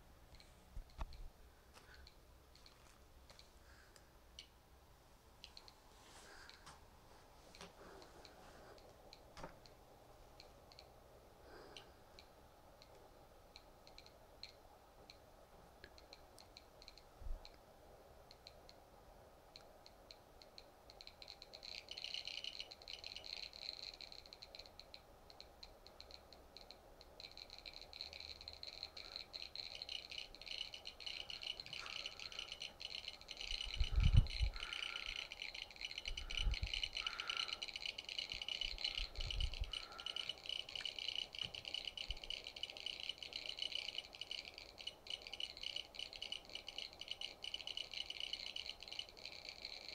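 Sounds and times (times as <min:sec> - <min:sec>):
high electronic ticking: 0:08.8 - 0:17.6, 0:19.5 - 0:49.9.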